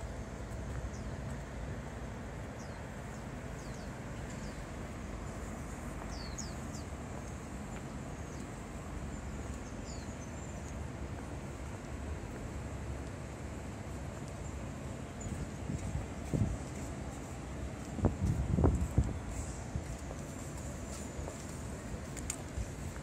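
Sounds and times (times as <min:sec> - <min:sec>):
small birds chirping: 0:00.0 - 0:12.4
low outdoor rumble: 0:00.0 - 0:23.0.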